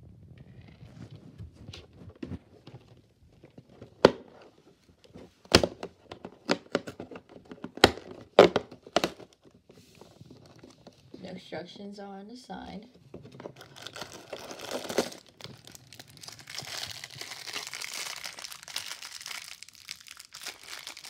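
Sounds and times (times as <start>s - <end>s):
cardboard tearing and popping: 5.4s - 9.4s, 13.4s - 21.0s
cardboard rustling: 13.0s - 21.0s.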